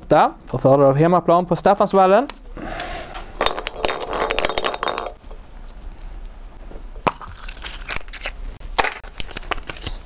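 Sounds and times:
balls rattling in a glass bowl: 3.2s - 5.2s.

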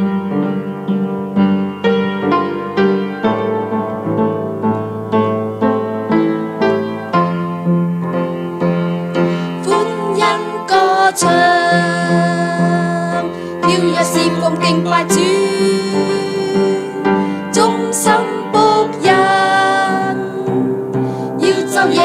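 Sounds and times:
piano accompaniment: 0.0s - 22.0s
person singing: 9.4s - 22.0s.

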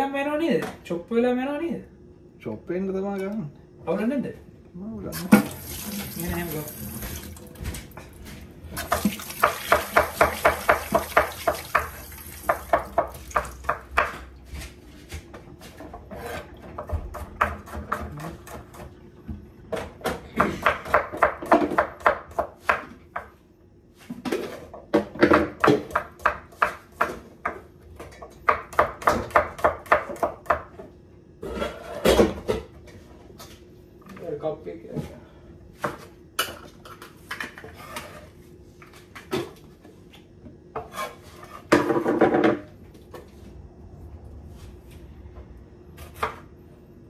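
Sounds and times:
knife chopping on wooden board: 8.8s - 14.3s, 16.2s - 18.9s, 19.7s - 23.4s, 25.0s - 30.8s.

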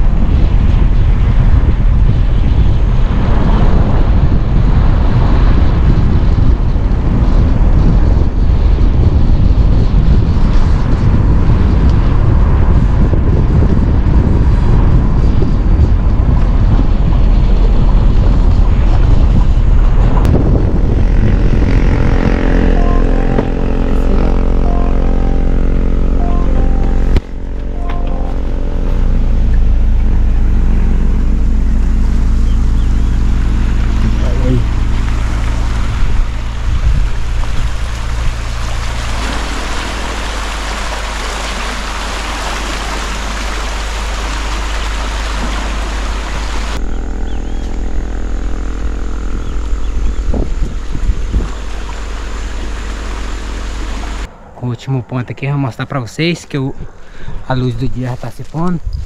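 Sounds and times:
loud rough low rumble: 0.0s - 59.0s
motor humming: 21.0s - 54.3s
river water rushing: 34.7s - 46.8s.

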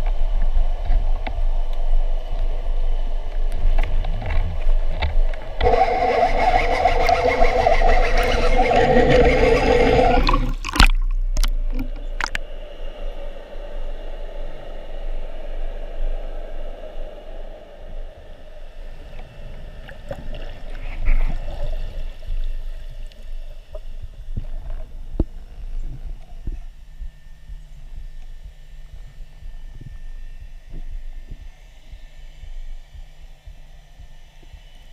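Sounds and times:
muffled underwater rush: 5.6s - 15.2s.

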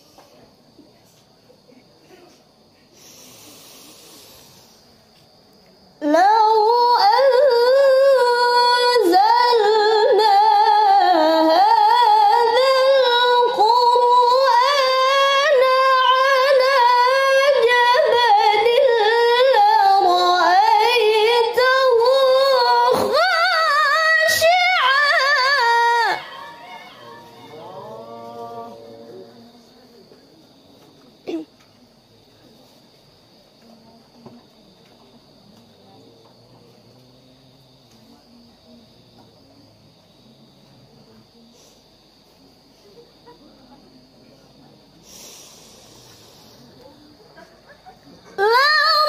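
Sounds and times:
woman reciting melodically into microphone: 6.0s - 27.8s, 48.4s - 49.0s.

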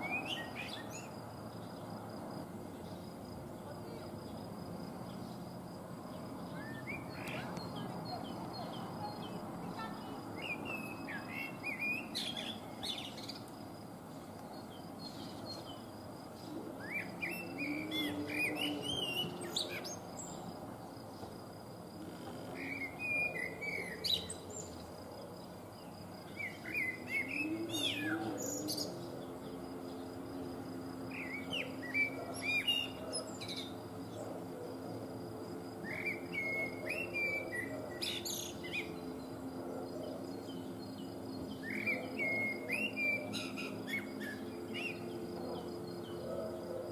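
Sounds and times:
blackbird singing: 0.0s - 1.9s, 6.1s - 13.5s, 14.6s - 20.5s, 22.6s - 24.9s, 26.3s - 30.1s, 31.1s - 34.2s, 35.8s - 46.9s.

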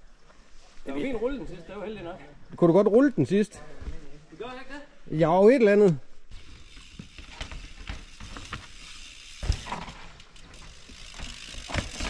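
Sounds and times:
mountain bike clattering over rocks: 6.3s - 12.0s.

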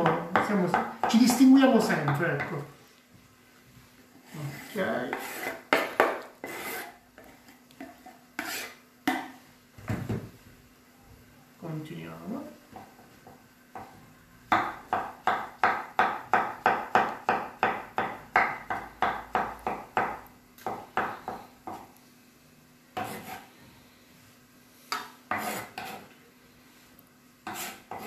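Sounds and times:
knife chopping on wooden board: 5.1s - 6.9s, 14.5s - 21.9s, 23.0s - 23.4s, 24.9s - 26.0s, 27.4s - 28.0s.

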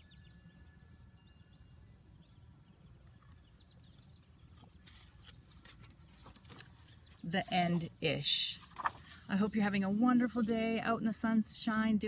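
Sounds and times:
faint bird chirp: 0.0s - 7.4s
handling of a hardcover book: 4.5s - 9.3s.

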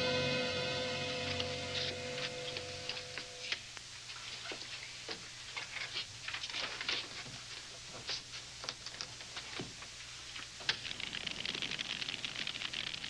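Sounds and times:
low steady hum: 0.0s - 6.4s
faint irregular clicks: 10.3s - 13.0s.

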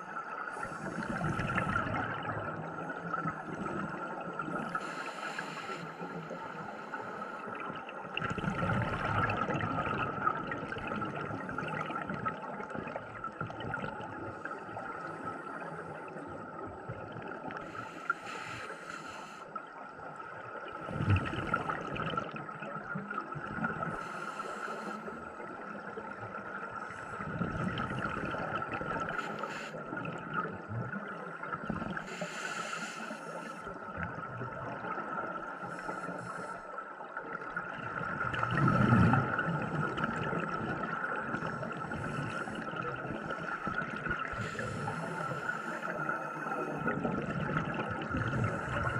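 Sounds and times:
low rumbling of water: 0.0s - 48.9s
diver's regulator breathing: 0.5s - 1.7s, 4.6s - 7.7s, 17.6s - 19.5s, 24.0s - 25.4s, 29.0s - 29.9s, 31.9s - 33.7s, 35.6s - 36.8s, 41.4s - 43.6s, 44.2s - 47.1s, 48.1s - 48.9s
exhaled bubbles bursting: 1.0s - 2.7s, 8.2s - 14.2s, 20.8s - 24.0s, 27.2s - 29.1s, 37.6s - 44.9s, 46.8s - 48.9s.

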